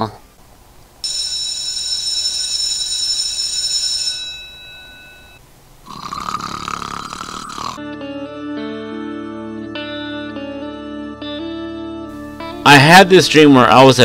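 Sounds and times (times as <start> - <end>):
high bell-like ringing: 1.0 - 5.4
person snoring: 5.8 - 7.8.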